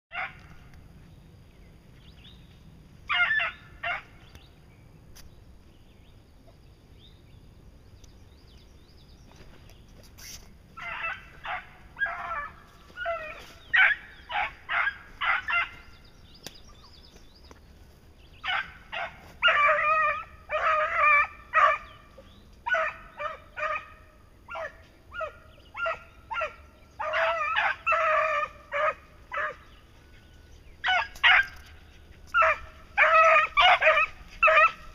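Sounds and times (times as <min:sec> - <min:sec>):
beagles baying: 0:00.1 - 0:00.7, 0:03.0 - 0:04.3, 0:10.7 - 0:17.0, 0:18.3 - 0:34.9.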